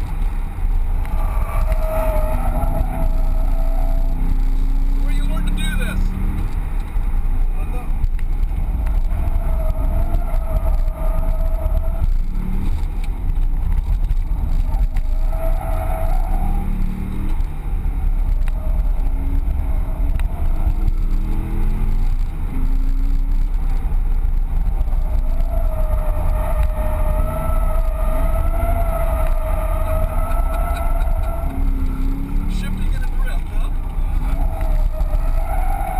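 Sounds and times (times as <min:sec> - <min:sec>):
car engine revving: 0:00.0 - 0:35.9
tyres squealing: 0:25.0 - 0:35.9.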